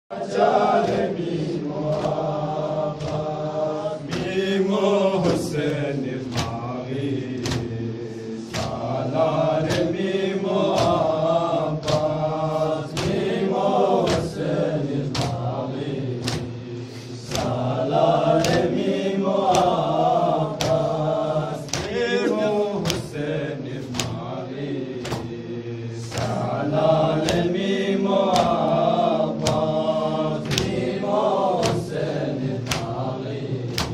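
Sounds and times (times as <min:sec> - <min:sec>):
men chanting into a microphone: 0:00.1 - 0:33.9
chest-beating slaps: 0:00.8 - 0:17.7, 0:18.3 - 0:25.4, 0:26.0 - 0:27.7, 0:28.3 - 0:33.9.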